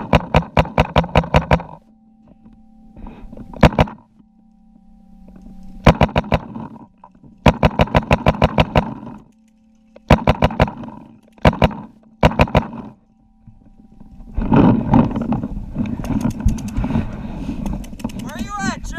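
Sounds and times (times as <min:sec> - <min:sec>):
paintball markers firing: 0:00.0 - 0:01.8, 0:05.8 - 0:06.6, 0:07.4 - 0:09.2, 0:10.1 - 0:13.0, 0:17.6 - 0:18.6
faint steady hum: 0:00.0 - 0:18.9.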